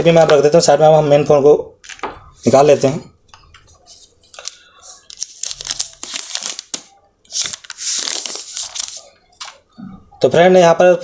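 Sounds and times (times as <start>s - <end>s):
plastic film crinkling: 3.6s - 9.6s.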